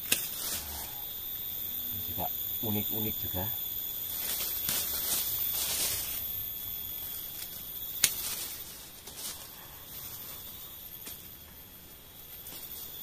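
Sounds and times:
branches snapping: 0.0s - 0.7s, 4.1s - 6.4s, 7.2s - 9.5s
high insect drone: 0.0s - 13.0s
leaves rustling: 0.0s - 13.0s.

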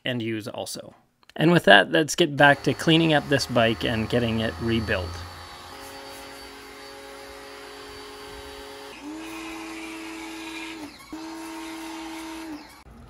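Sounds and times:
pressure washer motor hum: 2.4s - 13.0s
water jet hissing: 2.5s - 7.9s.

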